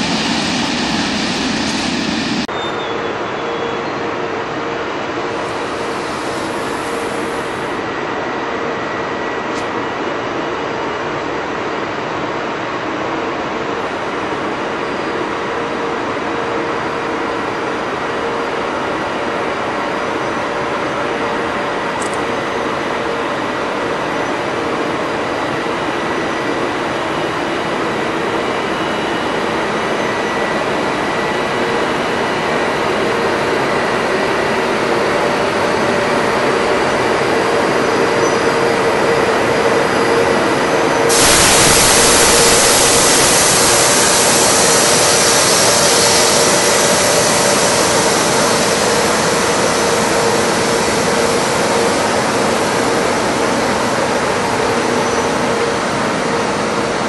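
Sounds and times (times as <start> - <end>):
loud hiss: 0.0 - 2.5, 5.3 - 7.8, 41.1 - 56.2
electric locomotive running: 0.0 - 57.0.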